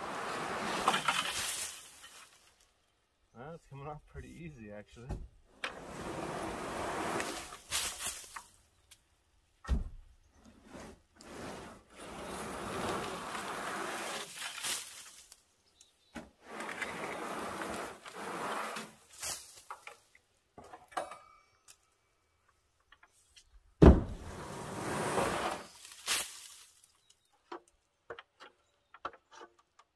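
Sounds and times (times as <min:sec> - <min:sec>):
rake scraping metal roof: 0:00.0 - 0:02.5, 0:05.5 - 0:08.5, 0:10.3 - 0:15.4, 0:16.2 - 0:20.0, 0:24.0 - 0:26.9.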